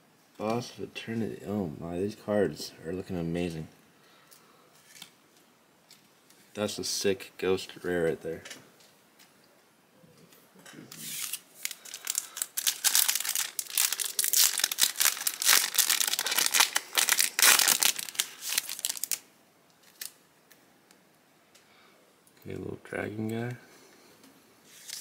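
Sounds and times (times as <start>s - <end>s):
foil wrapper tearing and crinkling: 11.0s - 19.2s, 19.8s - 20.2s, 24.7s - 25.0s.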